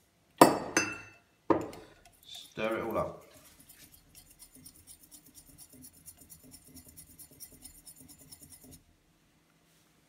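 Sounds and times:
spoon stirring in glass: 0:00.8 - 0:08.8.

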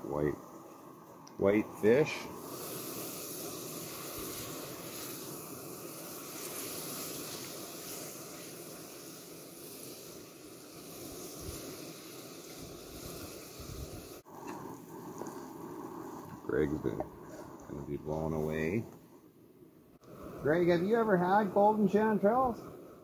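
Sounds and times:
food sizzling in frying pan: 0:01.4 - 0:18.8.

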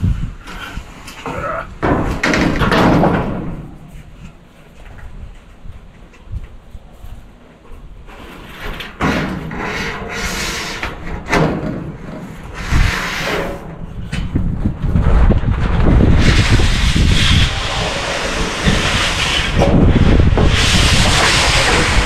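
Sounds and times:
metal roofing sheet scraping wood: 0:08.0 - 0:22.0.

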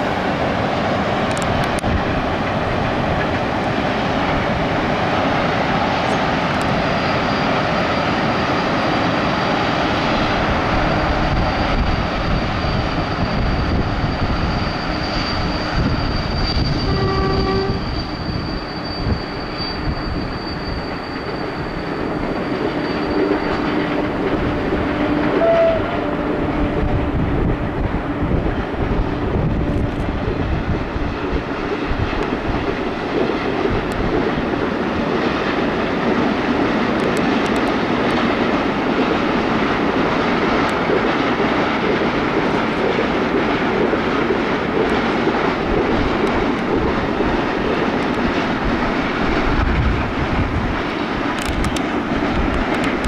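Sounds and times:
freight train wagons rumbling: 0:00.0 - 0:53.0
high-pitched wheel squeal: 0:05.2 - 0:31.2
train horn: 0:16.6 - 0:18.1, 0:24.8 - 0:28.3.

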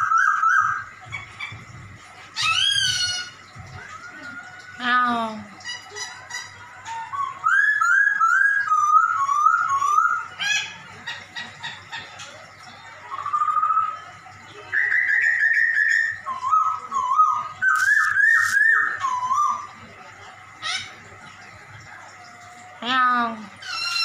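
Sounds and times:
bird singing whistled phrases: 0:00.0 - 0:00.9, 0:06.9 - 0:10.4, 0:13.1 - 0:19.8.

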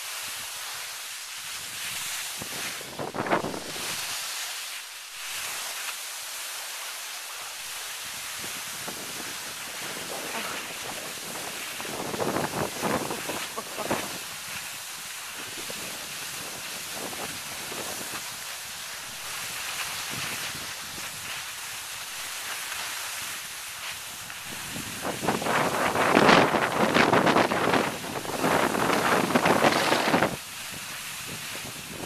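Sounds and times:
skis sliding over snow: 0:00.0 - 0:32.0
ski scrapes: 0:00.1 - 0:32.0
wind on microphone: 0:01.5 - 0:04.3, 0:08.0 - 0:21.8, 0:23.1 - 0:32.0.

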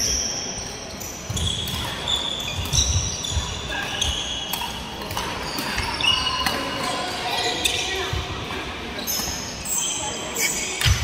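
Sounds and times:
sneakers squeaking on wood floor: 0:00.0 - 0:08.4, 0:09.0 - 0:11.0
racket hitting shuttlecock: 0:01.4 - 0:06.9.

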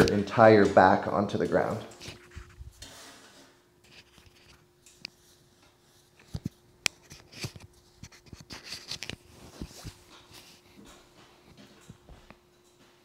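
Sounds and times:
clothing rustling: 0:05.2 - 0:12.1.

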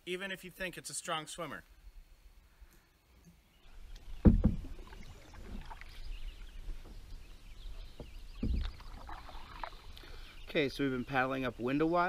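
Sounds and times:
canoe paddle strokes: 0:03.7 - 0:10.5
water sounds: 0:03.7 - 0:10.7.

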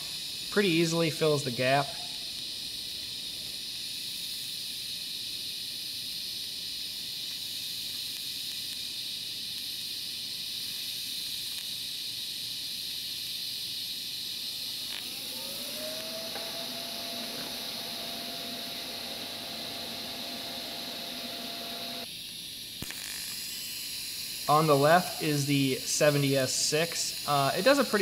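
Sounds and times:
welding arc hissing: 0:00.0 - 0:28.0.

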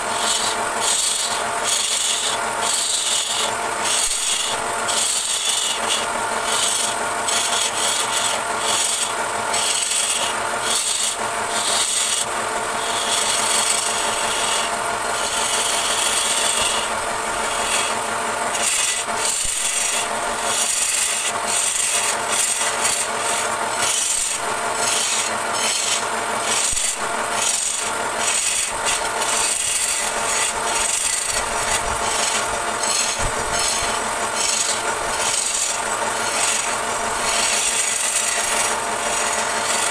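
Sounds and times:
lathe tool scraping wood: 0:00.0 - 0:39.9.

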